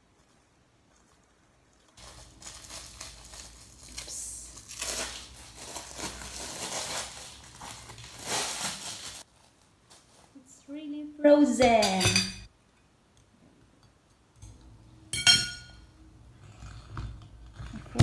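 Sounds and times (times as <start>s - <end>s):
plastic bag crinkling: 2.0s - 10.4s.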